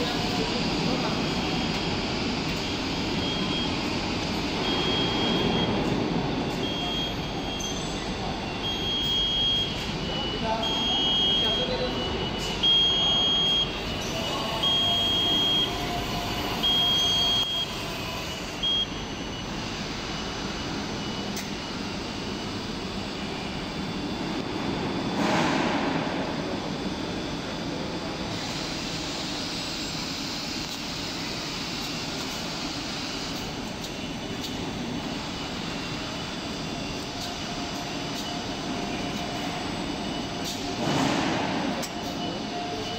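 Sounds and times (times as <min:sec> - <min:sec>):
robot warning beeps: 0:00.0 - 0:21.8, 0:35.8 - 0:42.9
machinery hum: 0:00.0 - 0:42.9.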